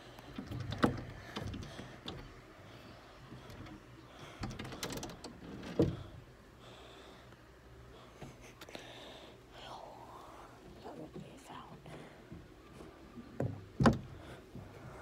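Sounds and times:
light knocks and rustling: 3.3s - 6.2s, 11.8s - 15.0s.

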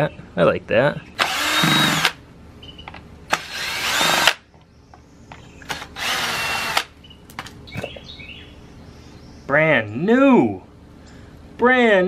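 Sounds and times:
cordless drill backing out screws: 5.7s - 6.9s.

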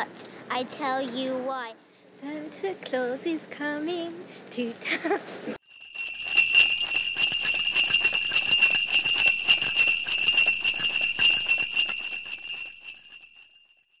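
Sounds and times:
sleigh bells jingling: 5.6s - 14.0s.

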